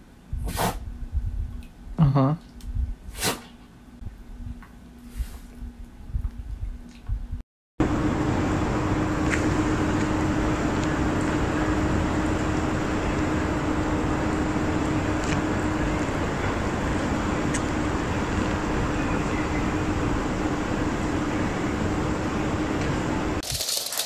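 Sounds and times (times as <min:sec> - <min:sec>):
constant low hum: 0:00.0 - 0:23.8
road traffic: 0:07.8 - 0:23.4.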